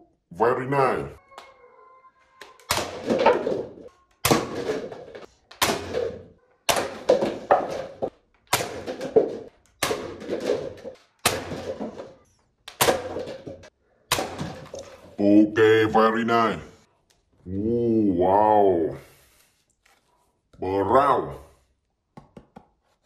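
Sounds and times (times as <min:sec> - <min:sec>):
paper cups rattling and falling: 0:02.4 - 0:15.2.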